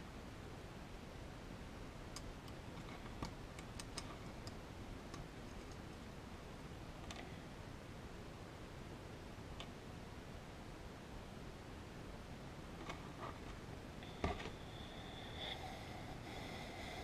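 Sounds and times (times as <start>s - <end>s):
steady low hiss: 0.0s - 17.0s.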